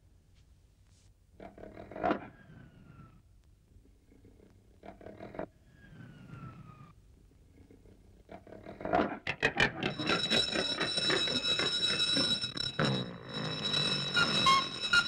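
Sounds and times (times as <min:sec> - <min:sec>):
alarm clock bell ringing: 0:09.8 - 0:15.0.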